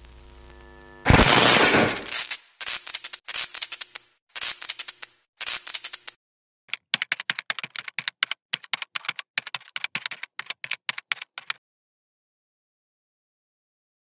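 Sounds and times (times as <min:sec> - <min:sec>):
keyboard typing: 0:02.0 - 0:11.6.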